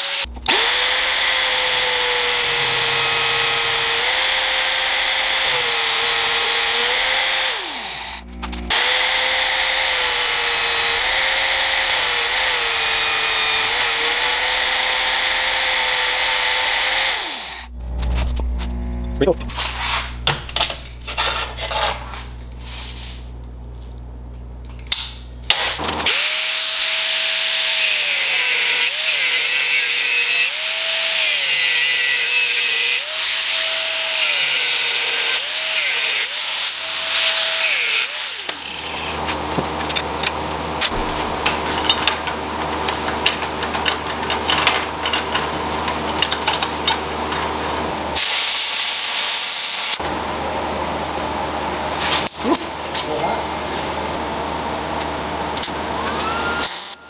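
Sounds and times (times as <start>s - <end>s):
power tool motor whine on steel: 0.0s - 23.2s.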